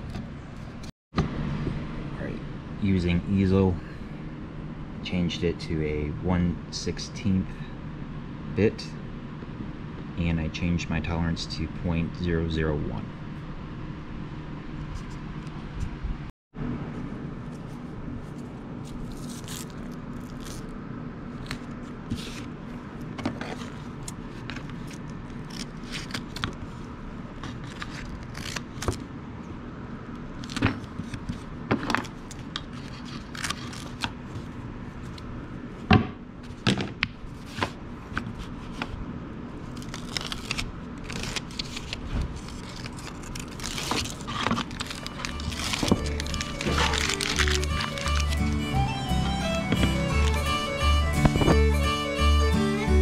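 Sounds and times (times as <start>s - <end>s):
steady low hum: 0.0s - 53.0s
adhesive tape tearing off roll: 18.9s - 20.8s, 39.7s - 48.6s
utility knife trimming tape: 42.6s - 48.6s.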